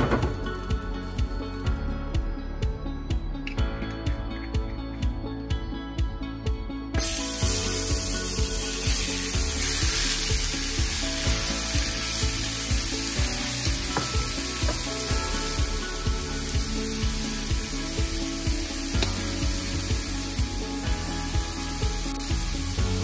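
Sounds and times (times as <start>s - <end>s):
background music with steady beat: 0.0s - 23.0s
meat sizzling in a frying pan: 7.0s - 23.0s.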